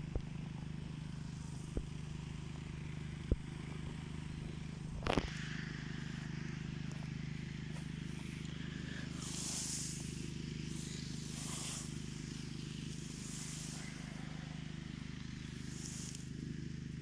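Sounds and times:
engine humming: 0.0s - 17.0s
rustle of cut grass: 5.0s - 17.0s.

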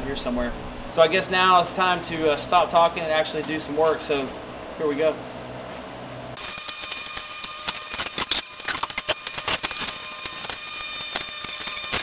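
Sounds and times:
high-pitched whine: 6.4s - 12.0s.

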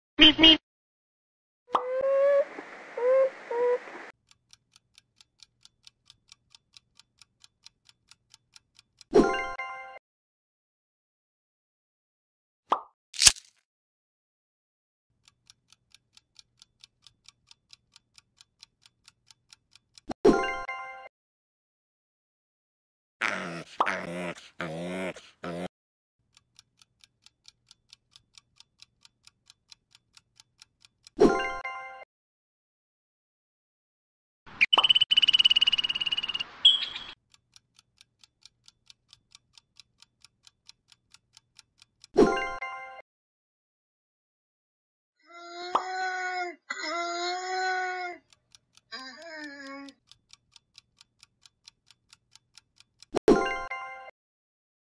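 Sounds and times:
clock ticking: 4.2s - 9.1s, 15.2s - 20.2s, 26.2s - 31.2s, 37.2s - 42.2s, 48.2s - 49.0s, 49.8s - 53.2s.

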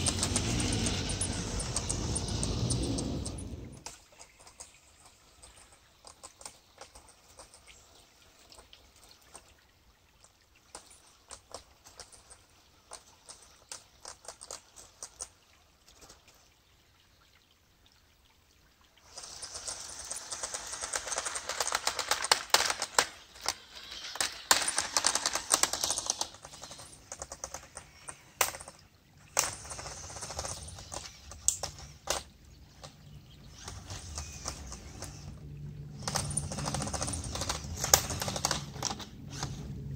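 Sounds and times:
plastic tracks clattering: 0.0s - 4.8s, 19.1s - 39.9s.

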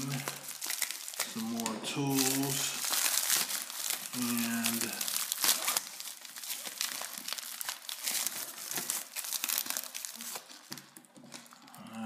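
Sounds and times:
plastic wrapping crinkling: 0.0s - 12.0s.

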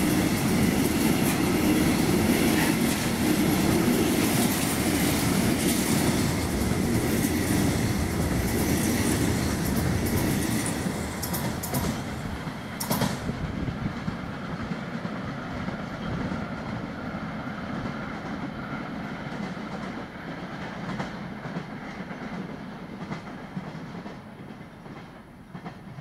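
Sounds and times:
freight train wheels rumbling: 0.0s - 26.0s
wheels clicking over rail joints: 0.2s - 13.4s.

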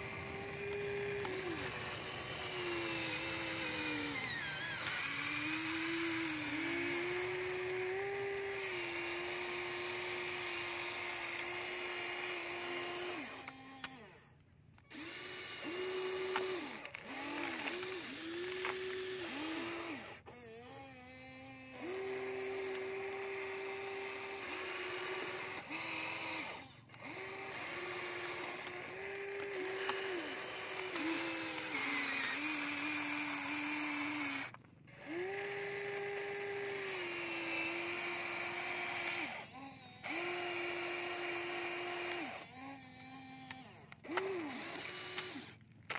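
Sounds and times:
toy electric motors whining: 0.0s - 45.9s.

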